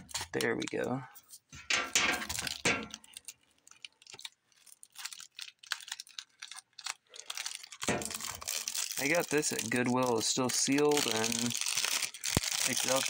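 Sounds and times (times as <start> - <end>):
plastic shrink wrap crinkling: 0.0 - 1.4, 2.1 - 13.0.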